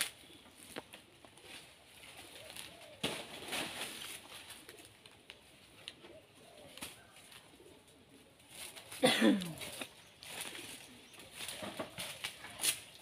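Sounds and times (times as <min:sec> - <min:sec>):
faint bird calls: 0:05.9 - 0:08.3.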